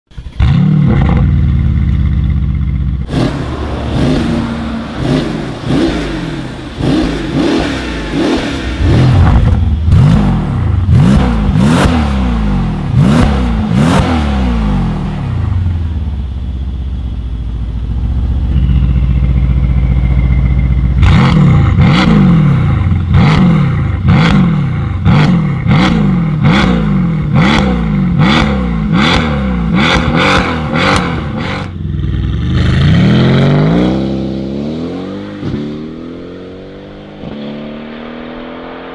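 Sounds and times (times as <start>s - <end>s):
exhaust cracks: 0.1s - 14.2s
car engine idling: 0.1s - 26.6s
car engine revving: 0.1s - 38.9s.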